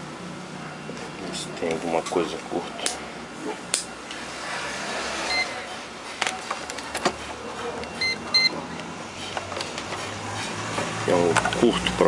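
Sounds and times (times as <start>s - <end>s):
multimeter short beeps: 7.9s - 8.6s.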